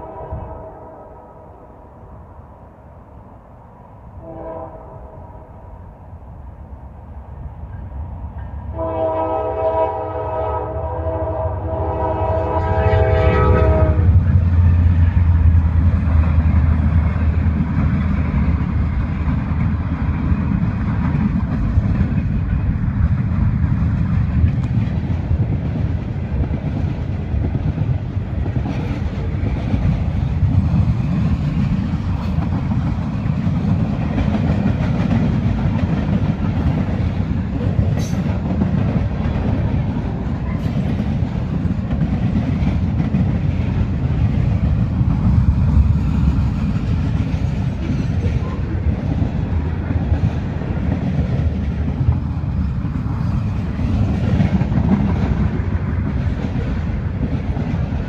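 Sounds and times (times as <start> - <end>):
locomotive air horn: 0.0 - 1.5, 4.2 - 5.5, 8.7 - 14.3
freight cars rumbling past: 10.8 - 58.0
train wheels clacking on rails: 12.1 - 58.0.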